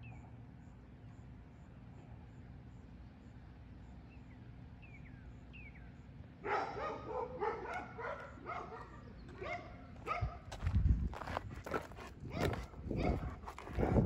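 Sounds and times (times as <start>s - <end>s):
dog barking: 6.4s - 10.5s, 12.3s - 14.0s.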